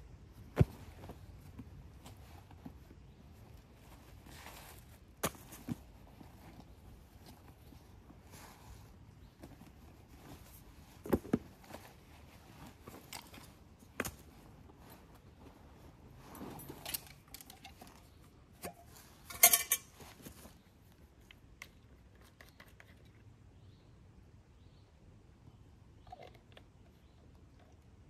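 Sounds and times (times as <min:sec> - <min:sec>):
fabric rustling: 0:00.3 - 0:20.7.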